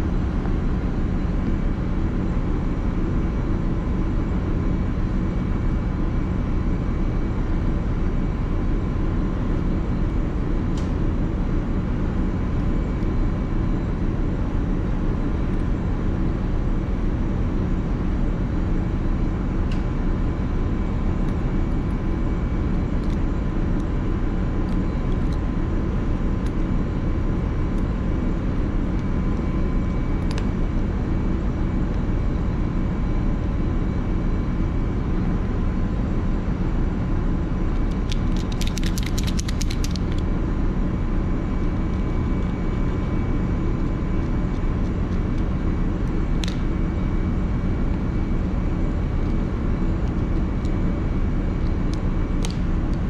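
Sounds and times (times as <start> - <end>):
ship machinery drone: 0.0 - 53.0
rattle of clicks: 37.9 - 40.2.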